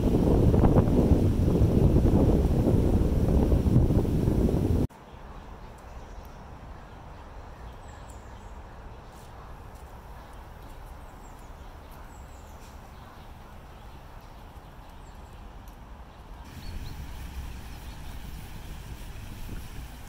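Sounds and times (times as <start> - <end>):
small birds chirping: 5.0 - 19.3.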